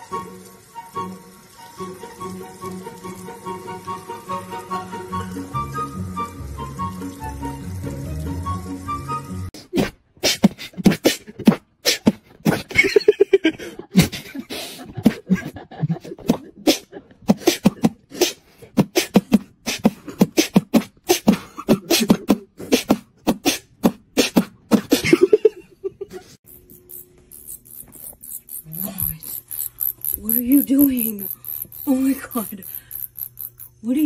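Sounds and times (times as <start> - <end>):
beatboxing clicks and beats: 9.7 - 12.8, 16.0 - 25.1, 26.5 - 33.8.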